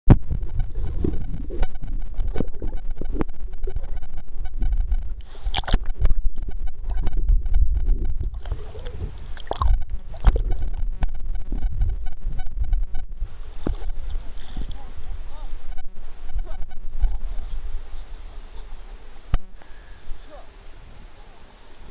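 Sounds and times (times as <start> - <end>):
muffled underwater rumble and sloshing: 0.1 - 19.8
water splashes: 5.1 - 7.0, 7.8 - 11.0.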